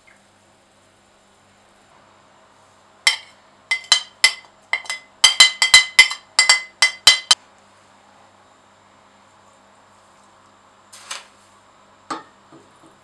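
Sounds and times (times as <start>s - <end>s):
metal utensil clinking on plate: 3.1s - 7.4s.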